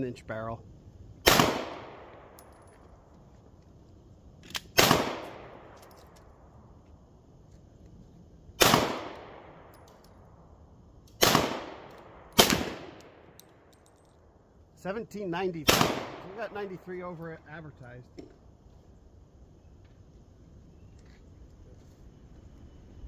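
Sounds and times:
pistol shots with echo: 1.2s - 2.4s, 4.8s - 5.8s, 8.6s - 9.7s, 11.2s - 13.2s, 15.6s - 16.6s.

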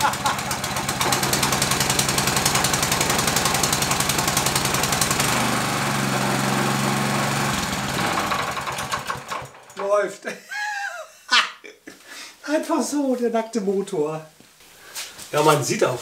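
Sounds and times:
small engine running: 0.0s - 9.8s.

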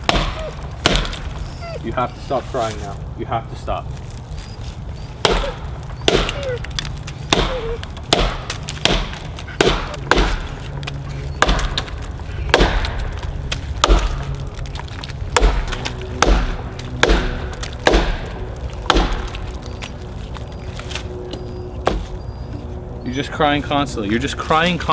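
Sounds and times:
axe chopping wood: 0.0s - 1.4s, 5.2s - 10.7s, 11.3s - 19.6s, 21.8s - 22.1s
dog whining: 0.2s - 2.5s, 4.3s - 8.0s, 9.4s - 12.5s, 19.4s - 23.6s.

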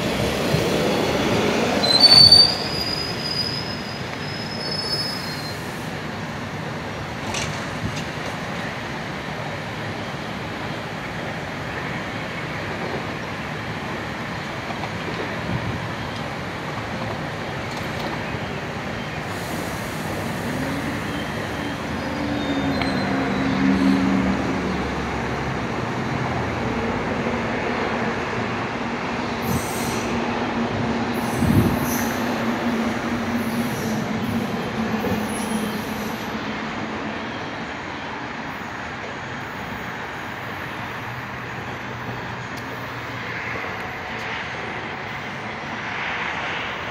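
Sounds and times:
train rumble: 0.0s - 46.9s
wheel squeals: 1.8s - 5.8s.

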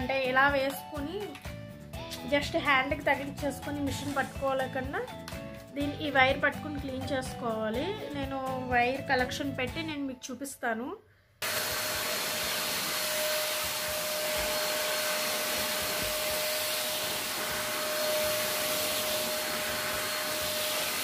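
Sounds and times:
vacuum cleaner running: 11.4s - 21.0s
vacuum nozzle on fabric cushion: 11.4s - 21.0s.

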